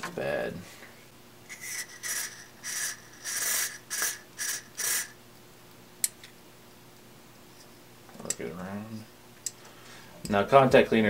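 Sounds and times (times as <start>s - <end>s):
aerosol spray hissing squirts: 1.5s - 5.2s.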